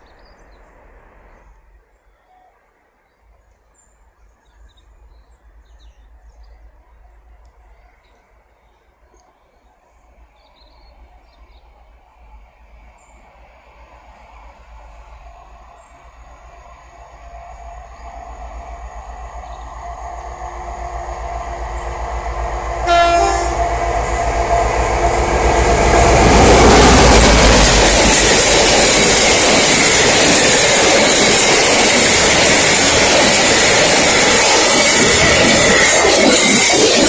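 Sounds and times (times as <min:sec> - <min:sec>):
train rumble and wheels on rails: 0:00.0 - 0:37.0
train horn blast: 0:22.8 - 0:23.8.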